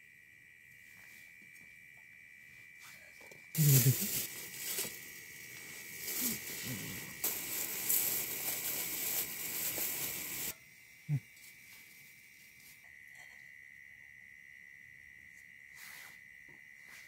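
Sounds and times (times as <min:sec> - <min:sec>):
night insects chirring: 0:00.0 - 0:17.0
gas stove burner hissing: 0:03.3 - 0:10.8.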